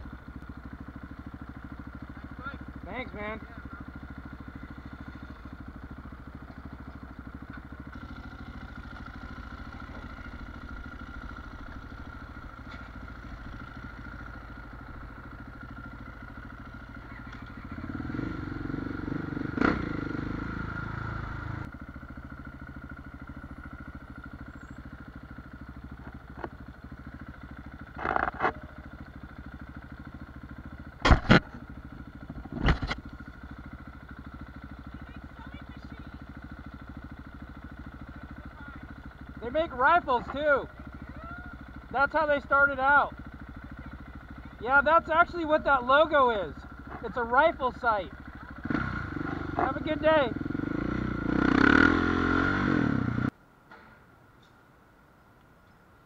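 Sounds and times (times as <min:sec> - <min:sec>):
motorcycle engine running: 0:00.0 - 0:53.4.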